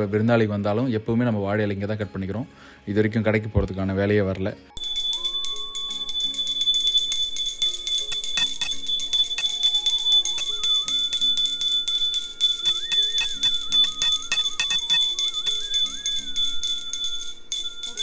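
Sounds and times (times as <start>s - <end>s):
slow melody: 4.6s - 18.0s
hand bell ringing rapidly: 4.8s - 18.0s.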